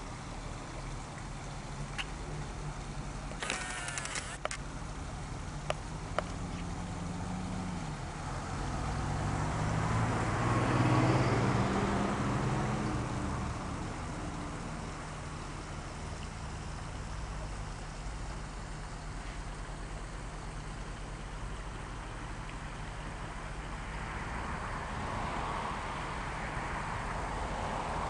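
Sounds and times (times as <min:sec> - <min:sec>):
vehicle engine passing by: 0:06.4 - 0:15.0, 0:23.6 - 0:28.0.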